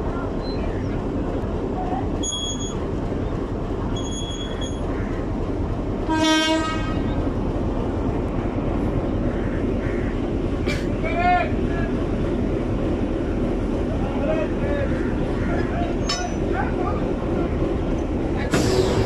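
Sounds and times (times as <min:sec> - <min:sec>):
locomotive idling: 0:00.0 - 0:19.0
train horn blast: 0:06.0 - 0:07.1.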